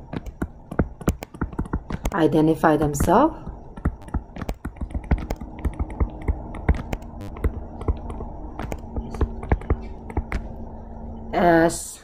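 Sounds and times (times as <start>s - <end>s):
stylus tapping on touchscreen: 0.0s - 2.2s, 3.8s - 10.5s
steady low hum: 0.0s - 12.0s.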